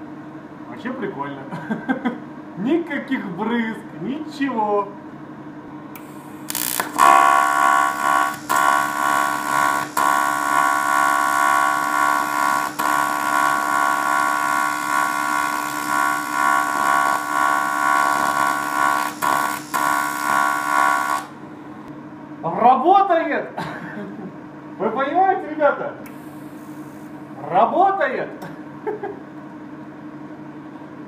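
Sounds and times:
welding arc buzzing: 6.0 - 21.5.

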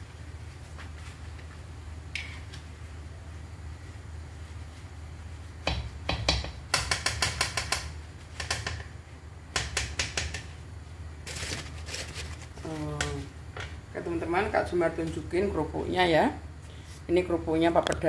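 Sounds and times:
steady low hum: 0.0 - 18.0
crisp papadams crackling: 11.2 - 13.3.

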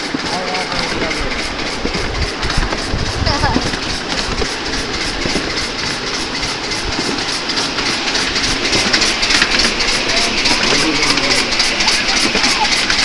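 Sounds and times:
train rumbling on rails: 0.0 - 13.0
wheels clickety-clack: 0.0 - 13.0.

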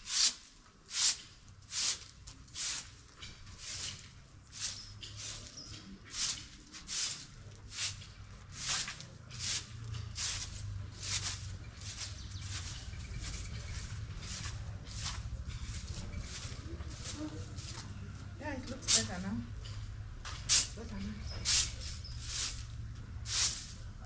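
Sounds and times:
broom sweeping paved ground: 0.0 - 24.0
steady low rumble: 9.2 - 24.0.

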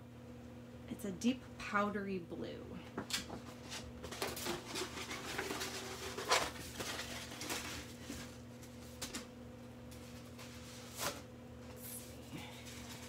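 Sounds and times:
wallpaper rustling and crinkling: 3.0 - 13.0.

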